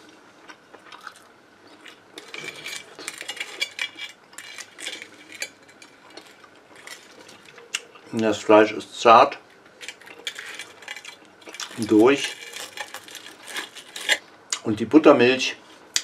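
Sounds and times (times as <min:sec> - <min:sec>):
knife sawing through crispy crust: 0:11.6 - 0:14.2.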